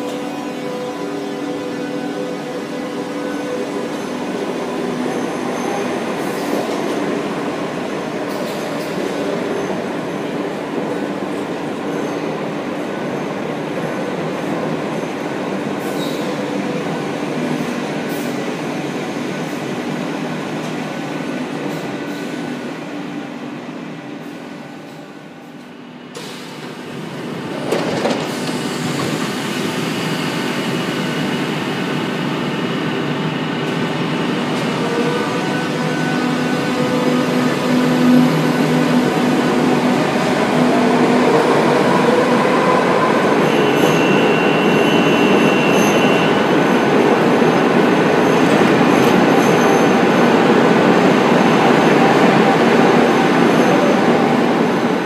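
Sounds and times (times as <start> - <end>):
train rumbling: 24.2 - 55.0.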